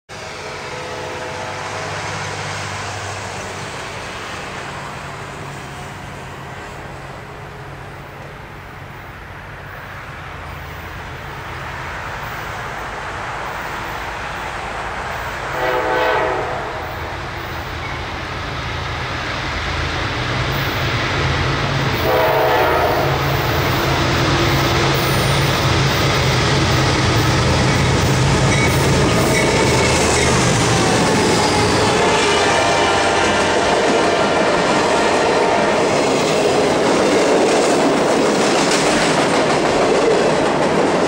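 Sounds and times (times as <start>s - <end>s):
locomotive horn: 0.1s - 2.0s, 15.5s - 17.0s, 22.0s - 23.6s, 31.6s - 36.0s
diesel locomotive engine rumble: 0.1s - 41.0s.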